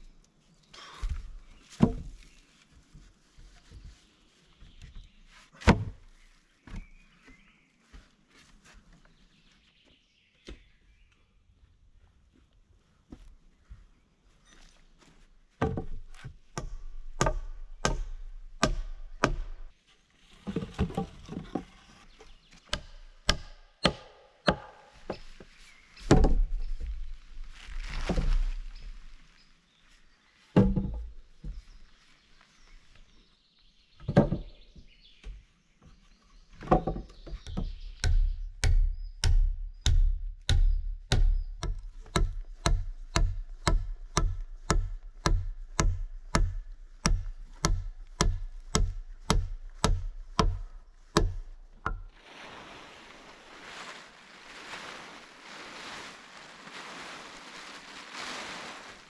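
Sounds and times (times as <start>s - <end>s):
logs thumping onto roof: 1.0s - 2.2s, 5.6s - 6.1s, 15.6s - 19.7s, 20.4s - 21.8s, 22.6s - 27.1s, 30.6s - 31.7s, 34.0s - 35.4s, 36.5s - 52.2s
plastic tarp rustling: 25.0s - 30.5s, 52.1s - 59.0s.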